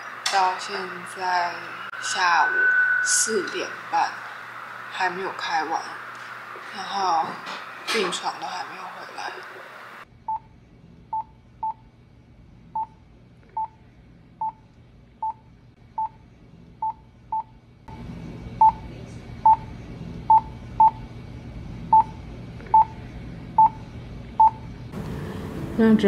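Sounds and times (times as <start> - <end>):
steady hum: 0.0 - 26.0
patient monitor pulse beeps: 1.4 - 4.8, 10.3 - 10.5, 11.1 - 11.8, 12.8 - 13.8, 14.4 - 14.6, 15.2 - 15.4, 16.0 - 16.2, 18.6 - 18.8, 19.4 - 19.7, 20.3 - 21.0, 21.9 - 23.0, 23.6 - 23.8, 24.4 - 24.6.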